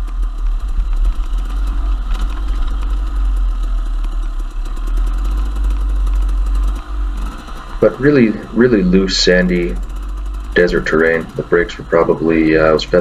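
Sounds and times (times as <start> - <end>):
dirt bike engine running: 0.0 - 13.0
bike clattering over stones: 0.1 - 7.8.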